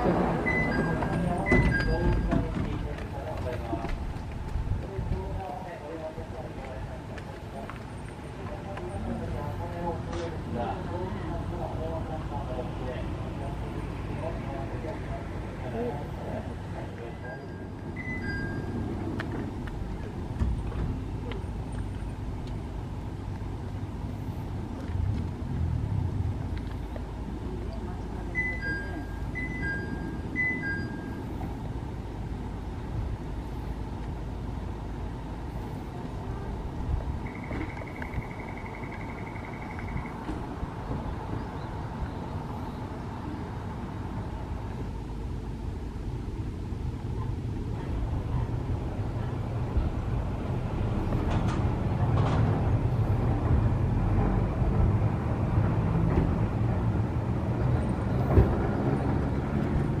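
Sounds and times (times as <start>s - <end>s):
cable car wheels rumbling on rails: 0.0s - 5.6s, 23.5s - 60.0s
low rumble: 17.7s - 28.4s.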